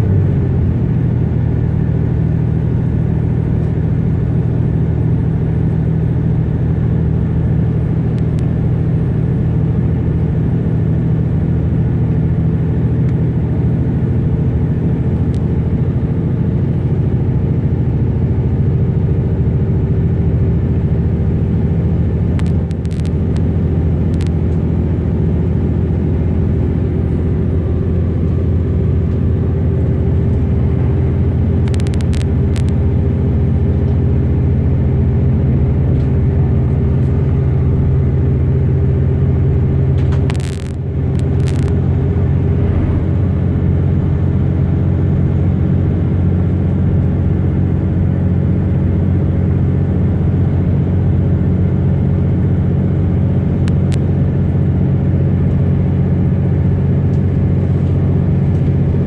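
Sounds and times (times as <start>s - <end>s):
train interior rumble: 0.0s - 59.0s
short clicks: 31.6s - 32.8s.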